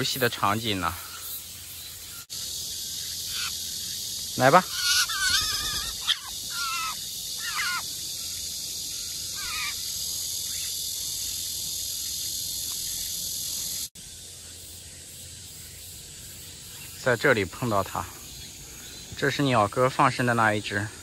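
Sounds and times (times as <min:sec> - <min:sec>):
insects droning: 0:00.0 - 0:21.0
jay harsh calls: 0:03.2 - 0:03.8, 0:04.4 - 0:08.0, 0:08.9 - 0:10.0.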